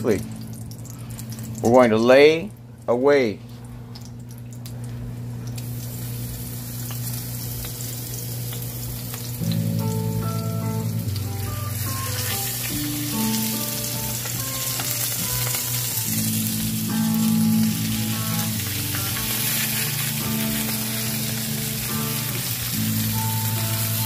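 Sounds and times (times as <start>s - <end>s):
steaks sizzling in hot oil: 5.5s - 24.0s
background music: 9.4s - 24.0s.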